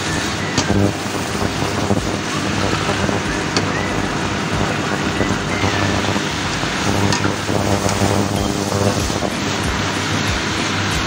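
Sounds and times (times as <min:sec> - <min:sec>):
noodles sizzling in a wok: 0:00.0 - 0:11.0
steady low hum: 0:00.0 - 0:11.0.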